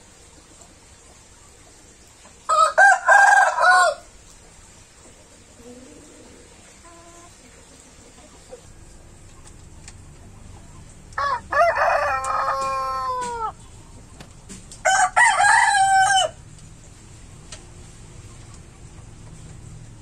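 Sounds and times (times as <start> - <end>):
rooster crowing: 2.5 - 4.1, 11.2 - 13.6, 14.8 - 16.4.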